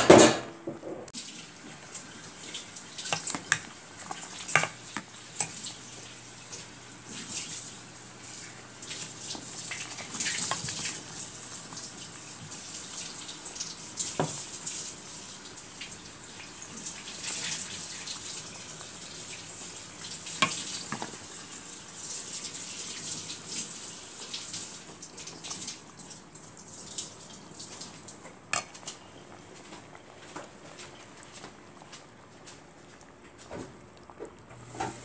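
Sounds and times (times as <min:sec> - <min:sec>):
soup simmering and bubbling: 0:01.2 - 0:35.0.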